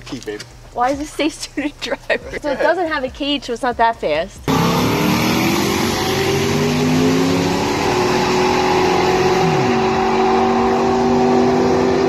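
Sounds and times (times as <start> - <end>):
drag car engine at full throttle: 4.5 - 12.0.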